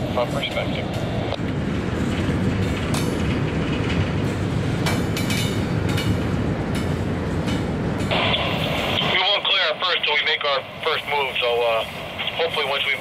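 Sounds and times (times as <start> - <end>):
freight train rumbling past: 0.0 - 13.0
wheels clicking over rail joints: 0.4 - 8.1.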